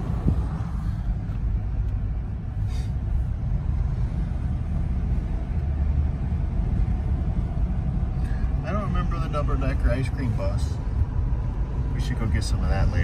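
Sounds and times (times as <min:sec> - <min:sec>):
vehicle rumble from inside cab: 0:00.0 - 0:13.0.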